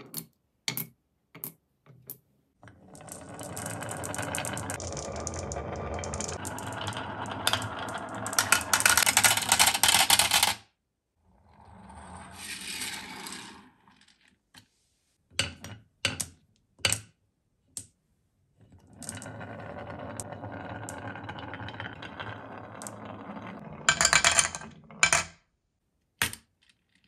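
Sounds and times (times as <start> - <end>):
marbles rolling on wooden track: 2.6 - 10.6, 11.7 - 14.4, 18.8 - 25.3
marbles clattering into plastic: 2.8 - 10.6, 19.0 - 25.3
glass marbles clicking: 23.9 - 25.3.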